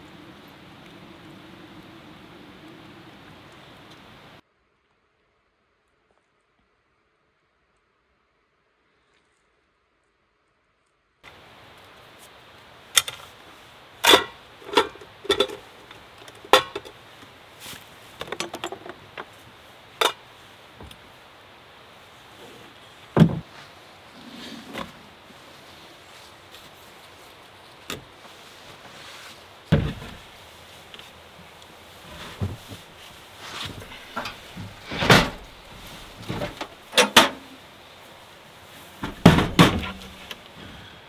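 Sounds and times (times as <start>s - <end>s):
faint steady hiss: 0.0s - 41.0s
knocks and clinks: 14.0s - 15.6s.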